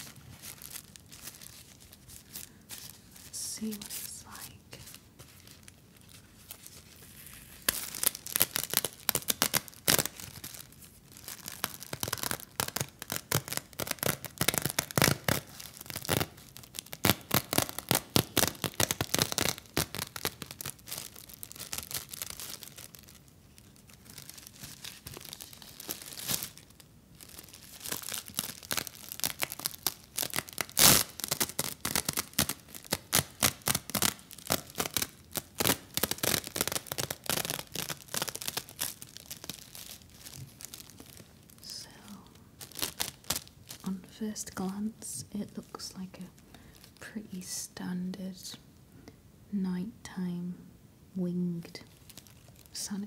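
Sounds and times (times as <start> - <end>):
plastic wrapper crackling and tearing: 0.0 - 47.1, 51.7 - 53.0.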